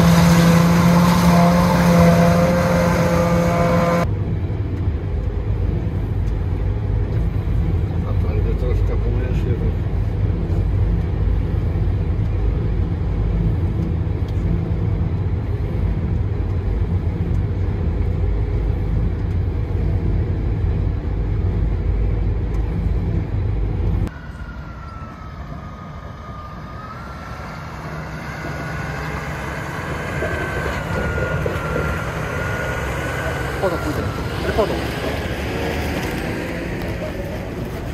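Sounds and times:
deep harvester drone in cab: 0.0s - 37.9s
field machinery high whine: 0.0s - 37.9s.

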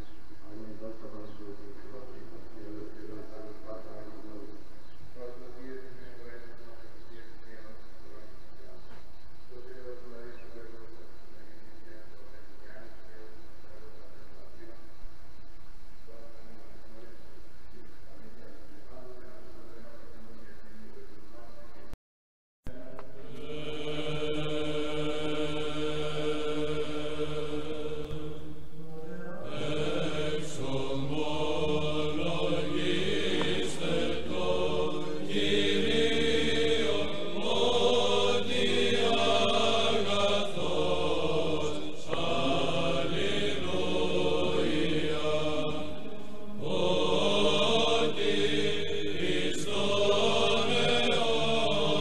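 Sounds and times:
chanted vocal music: 0.0s - 14.8s, 22.7s - 52.0s
low drone: 22.8s - 52.0s.

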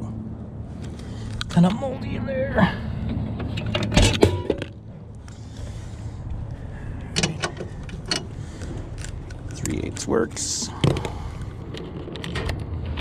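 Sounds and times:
low steady rumble: 0.0s - 13.0s
handling knocks and clicks: 7.0s - 13.0s.

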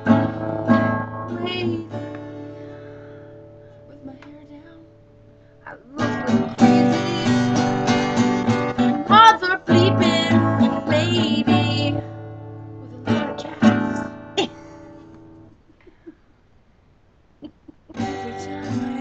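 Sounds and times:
acoustic guitar strumming: 0.0s - 3.9s, 5.7s - 15.5s, 17.9s - 19.0s.

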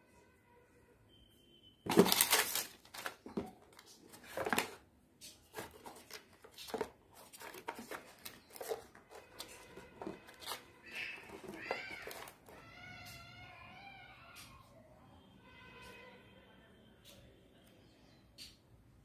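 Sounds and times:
phone handling rustling: 1.9s - 4.8s, 5.5s - 12.6s.

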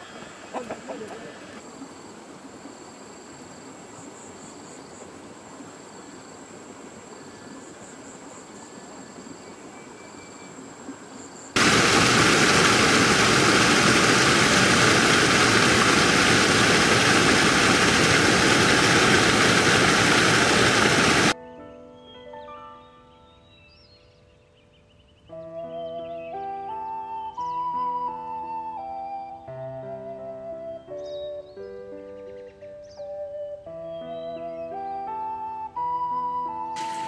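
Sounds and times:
loud even rushing noise: 11.6s - 21.4s.

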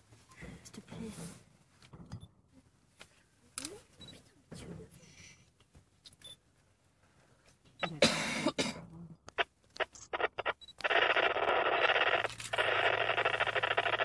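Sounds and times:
two-way radio static hiss: 9.3s - 14.0s.

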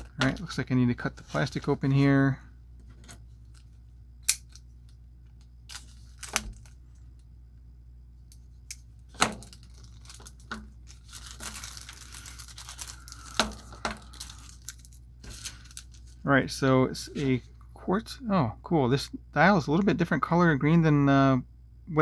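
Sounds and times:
plastic bag tearing and crinkling: 9.1s - 16.2s.

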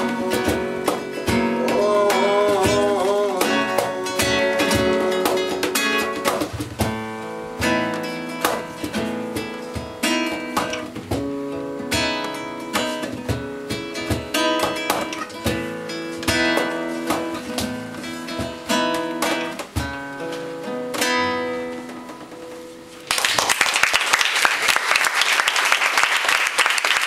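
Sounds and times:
acoustic guitar strummed and picked: 0.0s - 23.1s
cajon beats: 0.0s - 23.4s
audience applause: 23.1s - 27.0s.

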